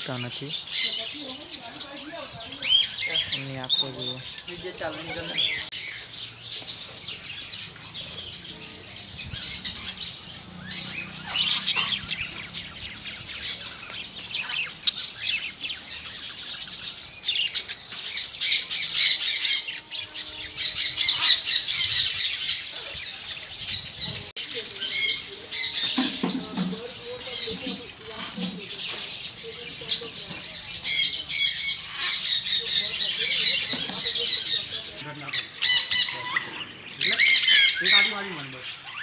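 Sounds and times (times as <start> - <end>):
birds chirping and squawking: 0.0 - 39.0.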